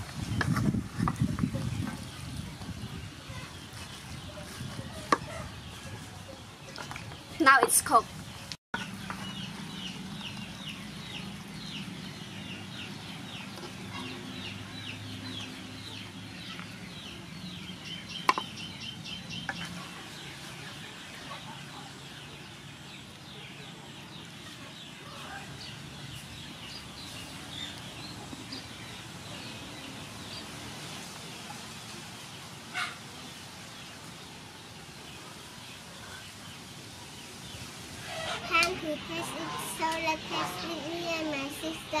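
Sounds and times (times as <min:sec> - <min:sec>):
chickens clucking: 0:19.3 - 0:22.6, 0:32.7 - 0:33.3, 0:37.4 - 0:42.0.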